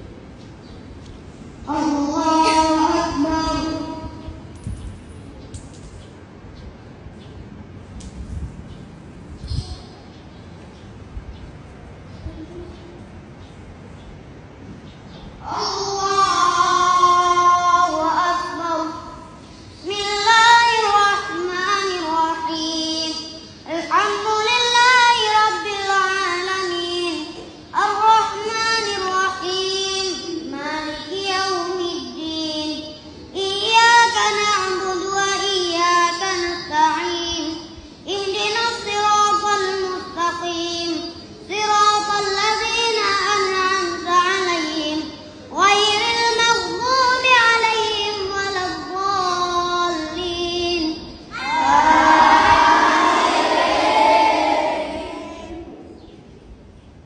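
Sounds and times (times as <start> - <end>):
boy reciting melodically: 0.0 - 7.8, 8.6 - 56.2
congregation voices: 1.6 - 4.6, 50.8 - 56.5.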